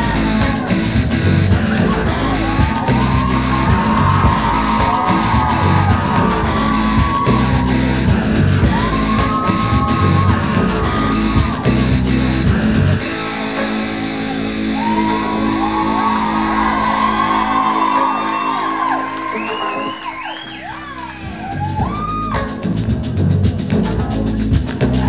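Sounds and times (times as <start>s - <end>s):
loud music with pulsing beat: 0.0s - 25.0s.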